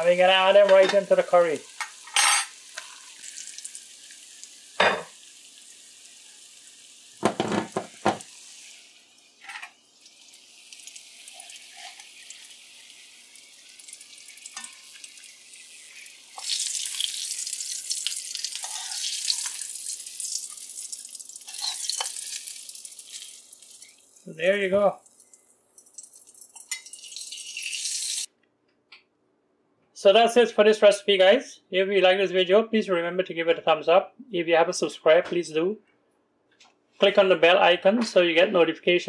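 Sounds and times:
oil sizzling: 0.0s - 28.3s.

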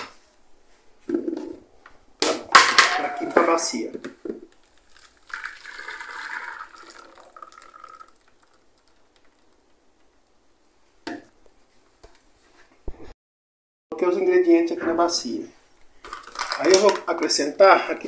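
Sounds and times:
batter pouring into bowl: 4.6s - 9.6s.

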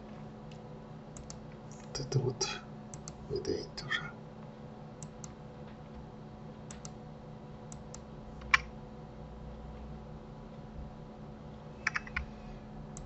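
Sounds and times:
faint electrical hum: 0.0s - 13.0s
keyboard and mouse clicks: 0.5s - 1.9s, 2.9s - 3.2s, 6.7s - 7.0s, 7.7s - 8.7s, 11.8s - 12.3s.

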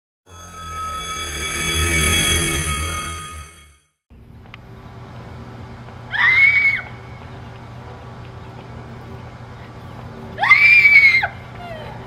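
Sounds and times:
loud high-pitched shrieks: 0.3s - 3.8s.

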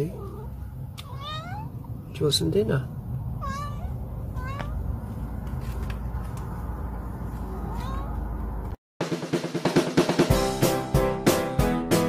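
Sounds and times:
cat meowing: 0.1s - 1.8s, 3.4s - 4.8s, 7.4s - 8.4s
steady low rumble: 0.5s - 8.8s.

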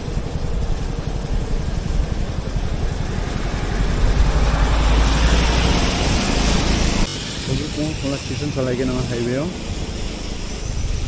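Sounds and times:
rushing noise: 0.0s - 11.0s
vehicle engine and road rumble: 0.0s - 11.0s.

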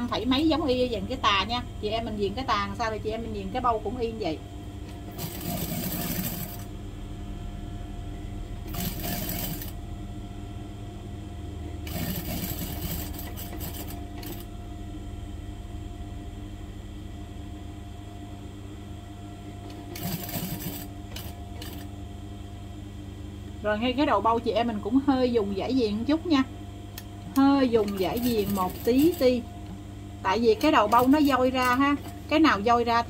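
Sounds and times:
steady low hum: 0.0s - 33.0s
sewing machine stitching: 5.1s - 6.7s, 8.7s - 9.8s, 11.8s - 14.5s, 19.9s - 21.9s, 27.8s - 29.2s.

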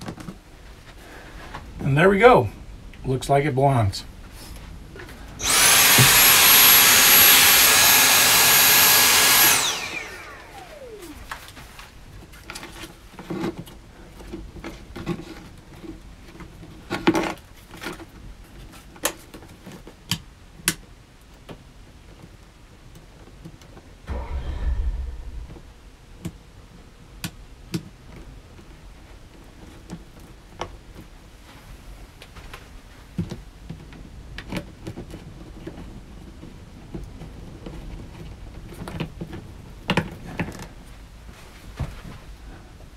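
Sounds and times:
small electric motor whine: 5.4s - 11.4s.

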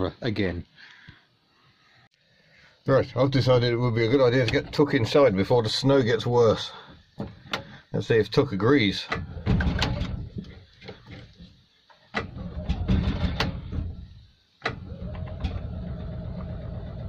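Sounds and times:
engine cranking without starting: 12.2s - 14.1s, 14.7s - 17.0s.

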